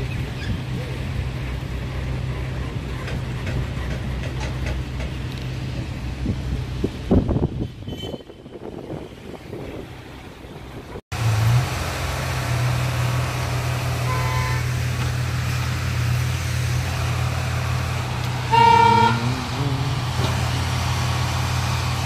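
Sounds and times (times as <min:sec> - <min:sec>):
heavy machine engine droning: 0:11.2 - 0:22.0
horn toot: 0:14.0 - 0:14.8, 0:18.3 - 0:20.4.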